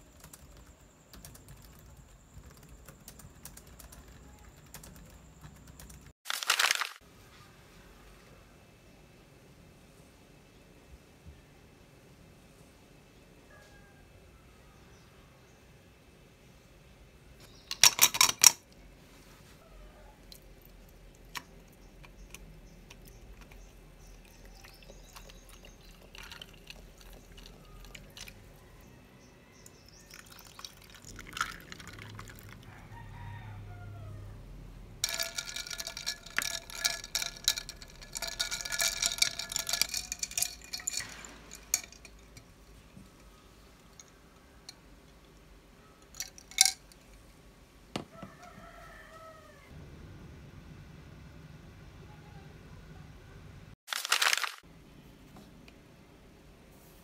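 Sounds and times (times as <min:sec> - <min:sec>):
coffee pouring over ice: 0:23.0 - 0:28.4, 0:30.0 - 0:32.6, 0:35.0 - 0:42.5, 0:53.9 - 0:54.6
ice clinking in glass: 0:35.0 - 0:42.5, 0:46.2 - 0:46.8.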